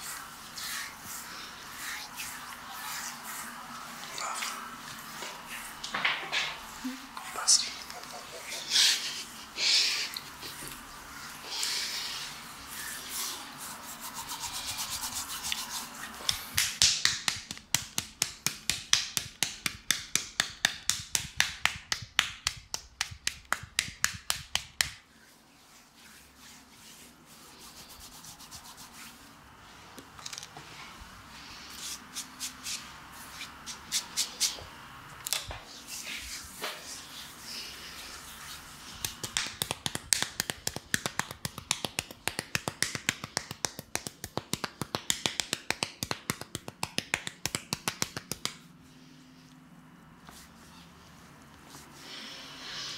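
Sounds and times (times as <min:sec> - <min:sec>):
light pats on skin: 0:00.0 - 0:09.4, 0:10.0 - 0:29.3, 0:31.7 - 0:34.6, 0:35.3 - 0:49.6
hands rubbing oiled skin: 0:00.0 - 0:29.4, 0:31.5 - 0:34.6, 0:35.5 - 0:48.8
hands slapping skin: 0:14.7 - 0:25.1, 0:38.4 - 0:48.7.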